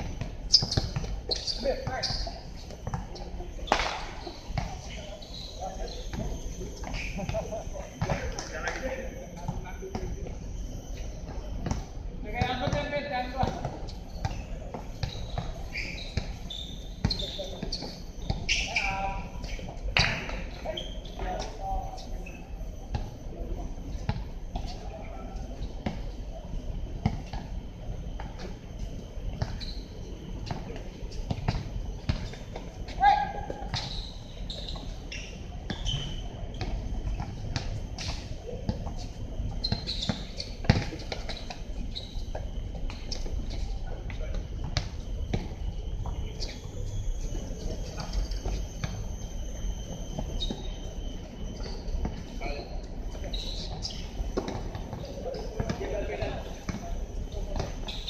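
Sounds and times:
high insect drone: 0.0s - 58.0s.

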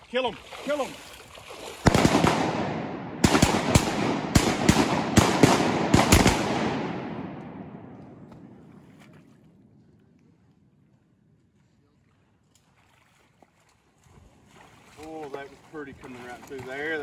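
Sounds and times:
shotguns firing a rapid volley: 1.8s - 8.2s
gunshot echo: 1.8s - 8.8s.

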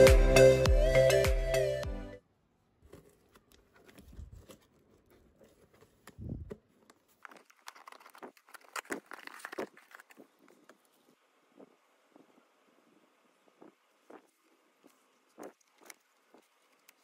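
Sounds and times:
cardboard crackling and tearing: 2.9s - 11.1s.

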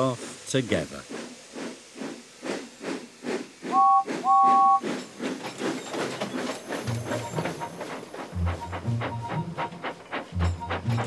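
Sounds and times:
steam locomotive chuffing: 0.0s - 11.0s
two-note steam whistle: 3.7s - 4.8s.

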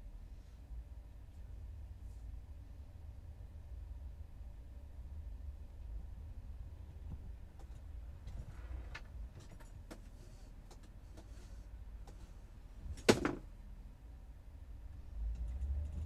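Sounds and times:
low rumble inside van: 0.0s - 16.0s
loud clunk: 13.0s - 13.5s.

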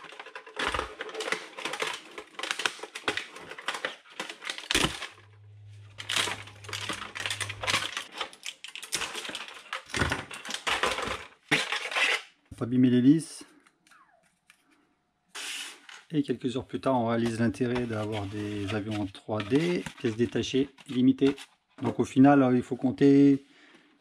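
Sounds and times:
plastic clicking and creaking: 0.0s - 11.4s
low steady hum: 4.9s - 8.1s.

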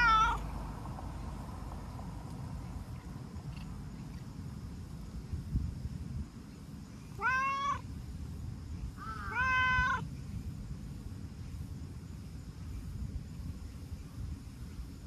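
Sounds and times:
cat meowing: 0.0s - 0.4s, 7.2s - 7.8s, 9.0s - 10.0s.

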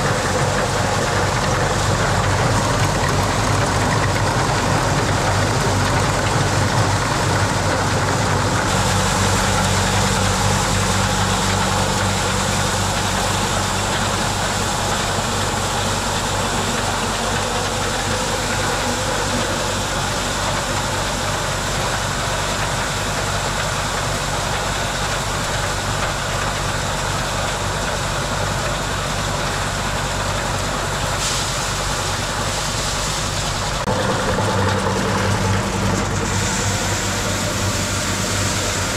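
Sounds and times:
engine running steadily: 0.0s - 38.9s.

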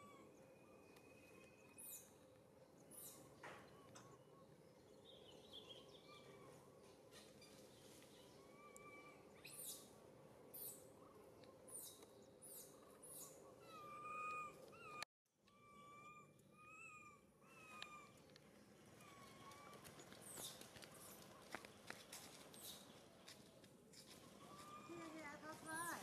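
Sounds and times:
infant monkey whimpering: 12.5s - 18.2s.

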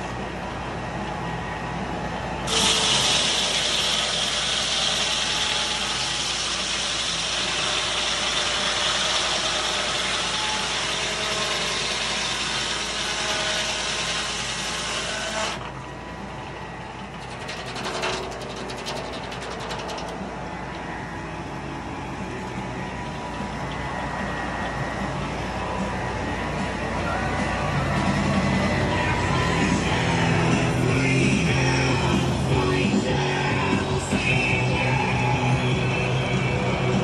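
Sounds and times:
sawmill running: 2.1s - 37.0s
circular saw cutting log: 2.5s - 15.7s, 17.2s - 20.2s.

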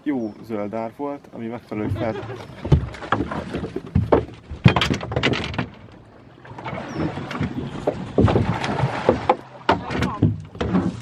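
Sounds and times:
gear knocking in boat: 1.8s - 11.0s.

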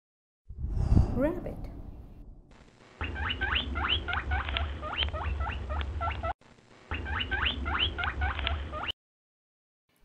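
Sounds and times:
low rumble: 0.5s - 2.6s
rabbit squeaking: 3.0s - 9.0s.

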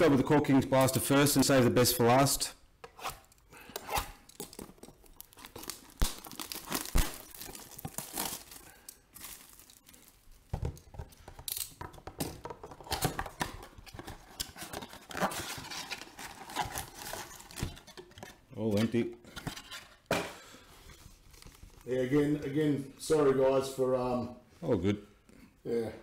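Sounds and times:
foil packs crinkling: 4.5s - 10.7s
cardboard tearing: 5.2s - 8.6s.

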